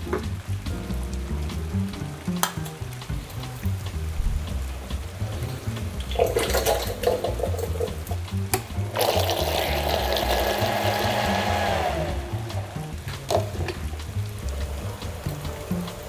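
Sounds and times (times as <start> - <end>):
beans glugging into jug: 5.3 - 14.7
blender running: 9.0 - 12.8.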